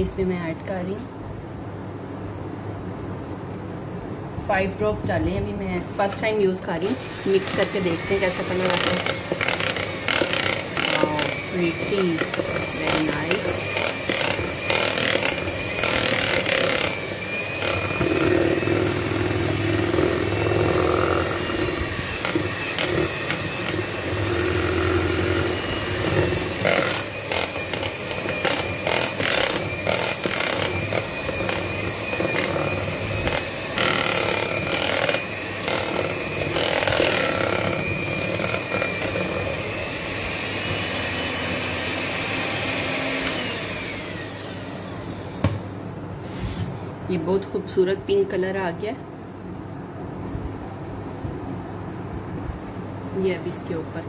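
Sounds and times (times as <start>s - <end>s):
electric hand mixer whining: 6.1s - 45.6s
mixer beaters knocking bowl: 6.8s - 44.5s.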